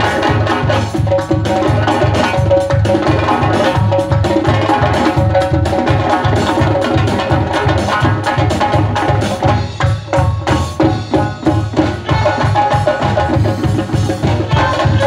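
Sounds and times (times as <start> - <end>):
drum kit: 0.0 - 15.0
frame drums beating fast rhythm: 0.0 - 15.0
keyboard melody: 9.7 - 15.0.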